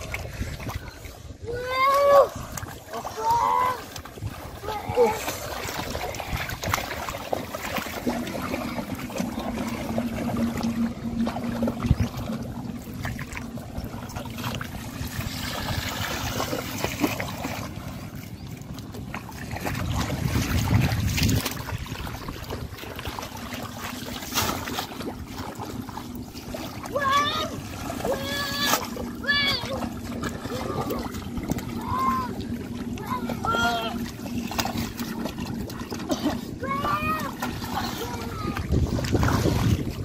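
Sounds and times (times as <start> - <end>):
low steady hum: 0.0 - 40.0
water sloshing and splashing: 0.0 - 40.0
low rumble: 3.8 - 40.0.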